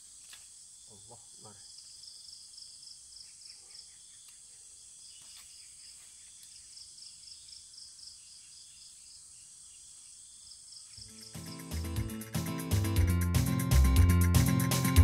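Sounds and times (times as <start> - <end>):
insects chirping: 0.0 - 12.6.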